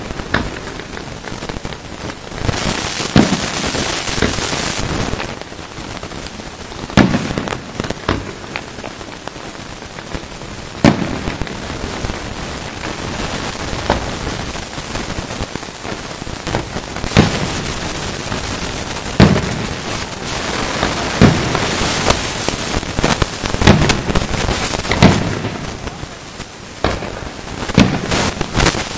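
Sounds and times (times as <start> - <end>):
steady hiss: 0.0 - 28.9
firework shells bursting: 0.2 - 5.4, 15.4 - 26.1, 26.8 - 28.9.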